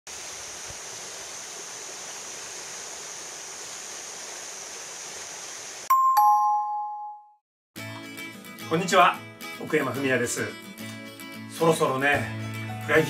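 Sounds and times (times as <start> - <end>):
stream running over rocks: 0.1 - 5.9
bright chime note: 5.9 - 7.4.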